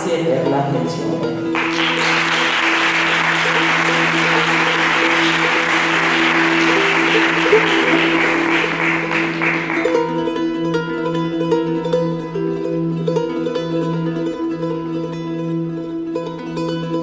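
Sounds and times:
plucked-string music: 0.0s - 17.0s
audience applauding: 1.6s - 10.3s.

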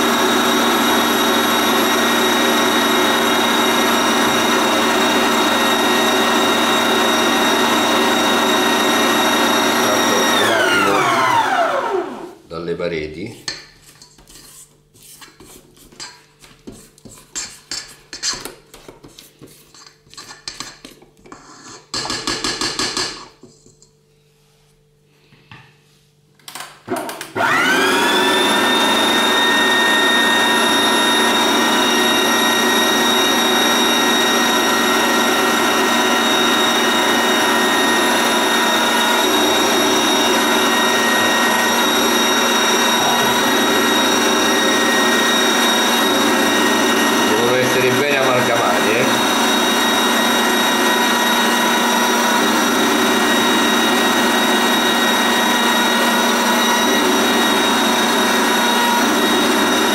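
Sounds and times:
mixer motor whining: 0.0s - 12.4s, 26.5s - 59.9s.

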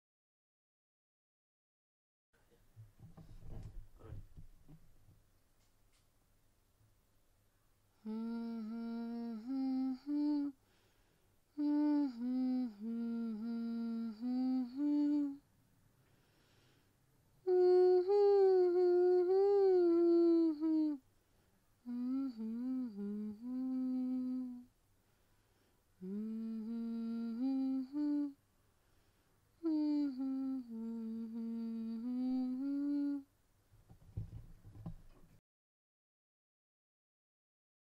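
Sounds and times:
person humming a slow melody: 8.0s - 10.6s, 11.5s - 15.5s, 17.4s - 21.0s, 21.8s - 24.7s, 26.0s - 28.4s, 29.6s - 33.3s.

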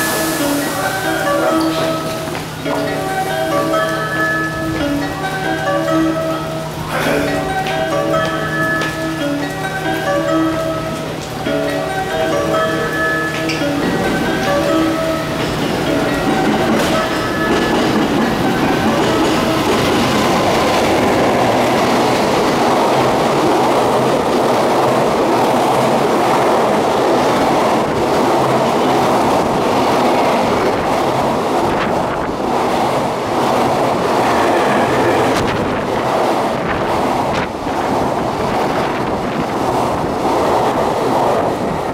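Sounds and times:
train wheels rumbling on rails: 0.0s - 41.9s
clickety-clack over rail joints: 12.8s - 34.4s.

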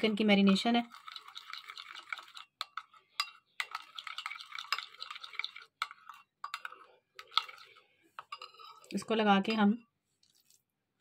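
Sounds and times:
spoon stirring thick mixture: 0.0s - 11.0s.

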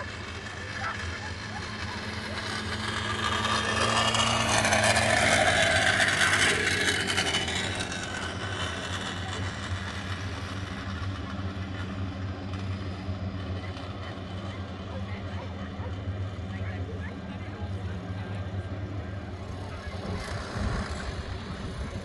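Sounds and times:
mechanical whir: 0.0s - 13.8s, 19.4s - 22.0s
steady low hum: 0.0s - 22.0s.

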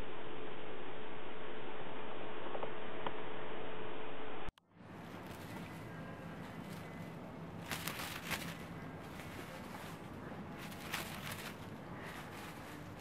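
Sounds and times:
faint low hum: 0.0s - 13.0s
soft rustles: 4.8s - 13.0s.

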